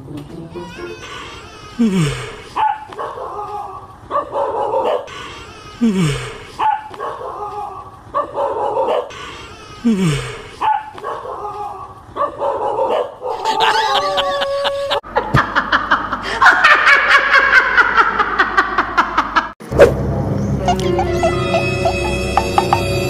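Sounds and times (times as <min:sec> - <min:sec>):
dog barking and yelping: 0:02.5 - 0:05.2, 0:06.6 - 0:09.2, 0:10.6 - 0:15.0
woman laughing loudly: 0:13.3 - 0:19.6, 0:20.7 - 0:22.4.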